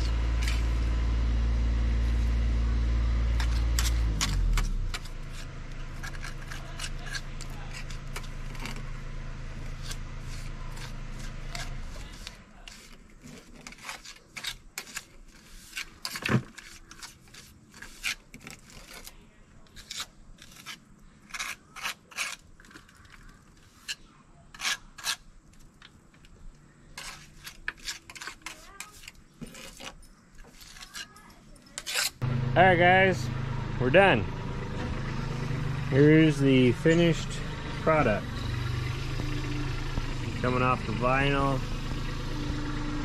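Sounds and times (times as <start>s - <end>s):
tool scraping mortar: 0.0s - 1.0s, 3.3s - 9.0s, 9.6s - 25.6s, 26.9s - 32.3s.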